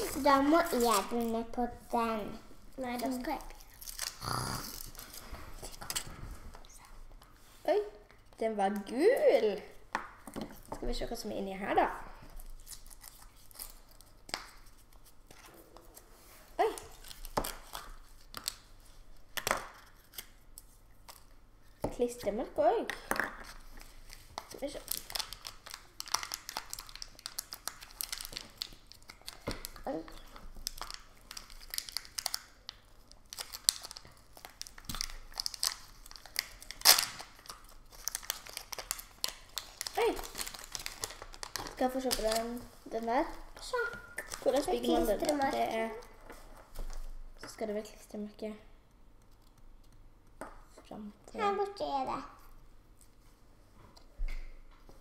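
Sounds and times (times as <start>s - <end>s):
plastic wrapper crinkling: 2.8s - 6.9s, 23.4s - 47.2s.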